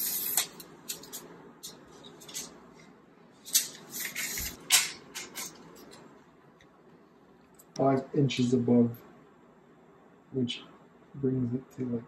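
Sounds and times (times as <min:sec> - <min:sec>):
tape measure and pen clicks: 0:00.0 - 0:01.2.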